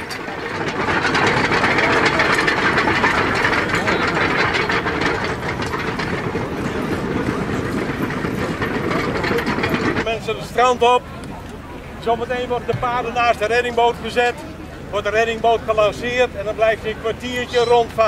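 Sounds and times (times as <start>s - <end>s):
harness and chains rattling: 0.0s - 10.2s
horses hauling carriage over sand: 0.0s - 11.1s.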